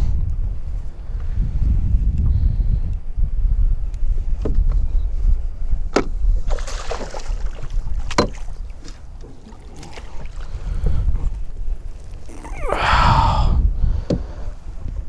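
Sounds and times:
wind buffeting microphone: 0.0s - 15.0s
fish splashing at water surface: 6.5s - 10.7s.

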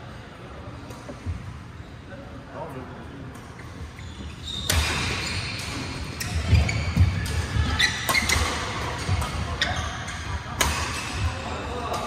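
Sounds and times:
court shoes squeaking: 3.3s - 12.0s
rackets striking a shuttlecock: 4.7s - 12.0s.

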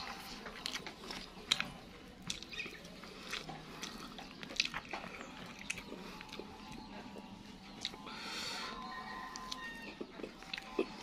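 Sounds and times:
wet chewing: 0.0s - 11.0s
lip smacks and clicks: 0.3s - 8.0s.

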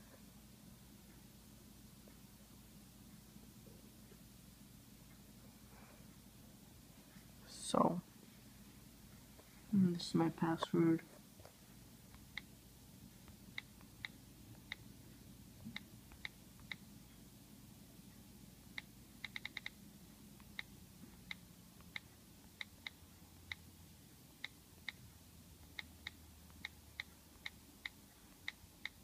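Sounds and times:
touchscreen keyboard clicks: 18.8s - 19.8s.

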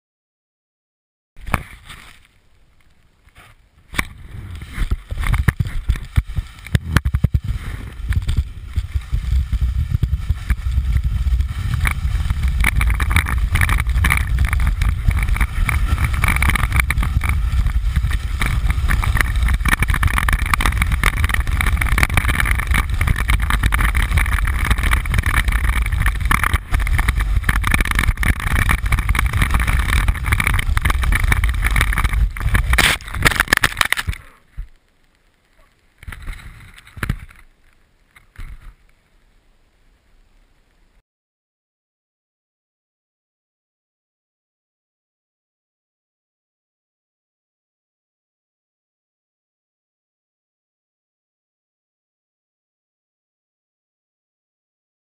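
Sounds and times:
snowboard scraping packed snow: 1.4s - 2.5s, 3.2s - 34.8s, 35.5s - 38.9s
wind buffeting microphone: 3.9s - 34.8s.

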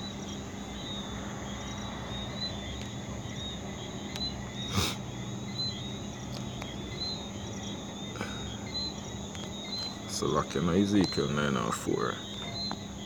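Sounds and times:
crickets chirping: 0.0s - 13.0s
steady low hum: 0.0s - 13.0s.

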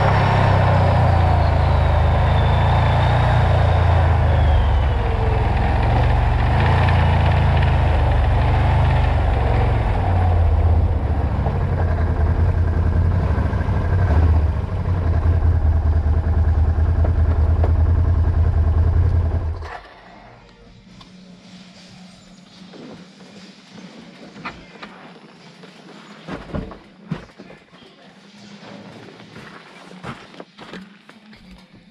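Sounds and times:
atv engine idling: 0.0s - 19.6s.

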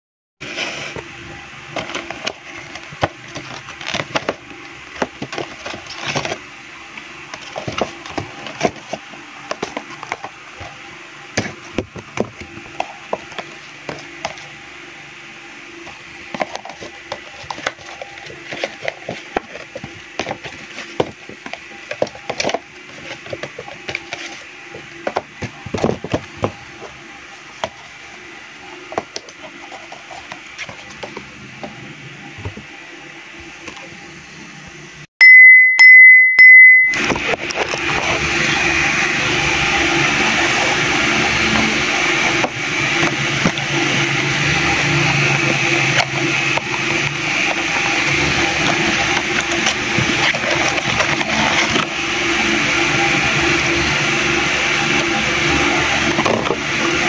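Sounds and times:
cardboard boxes crackling and scraping: 1.7s - 6.5s, 7.3s - 14.5s, 15.9s - 28.2s, 28.8s - 31.8s, 40.3s - 52.2s.

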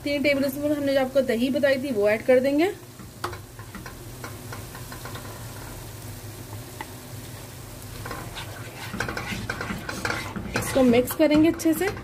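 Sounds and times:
masala sizzling in a pot: 0.0s - 12.0s
spatula scraping and stirring: 3.0s - 6.0s, 6.8s - 12.0s.

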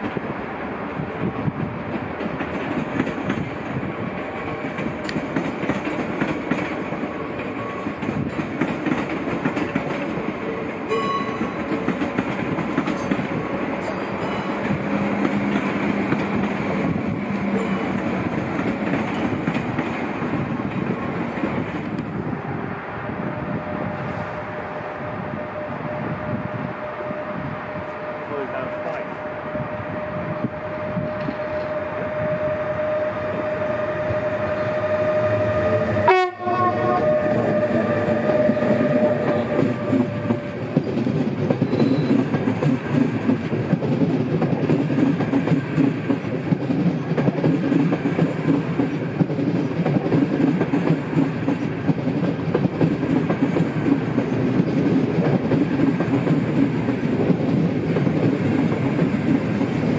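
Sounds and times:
train carriages rumbling and clattering: 0.0s - 32.6s, 33.2s - 59.9s
steady high tone: 10.9s - 11.8s.

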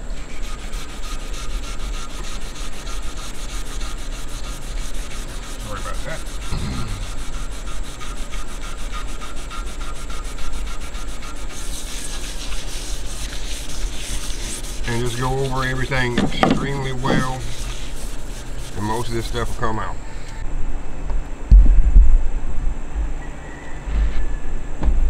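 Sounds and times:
scouring pad scrubbing painted surface: 0.2s - 19.9s.

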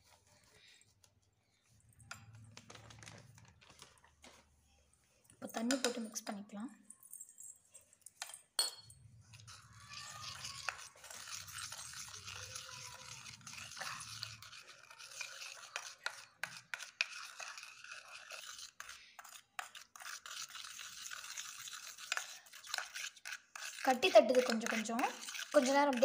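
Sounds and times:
spoon scraping plaster paste: 0.0s - 4.4s, 9.2s - 26.0s.

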